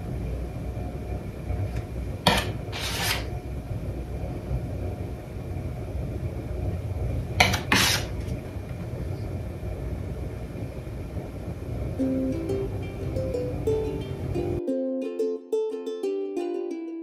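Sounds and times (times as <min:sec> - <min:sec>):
steady low rumble: 0:00.0 - 0:14.6
palette knife scraping paint: 0:02.3 - 0:03.3, 0:07.4 - 0:08.1.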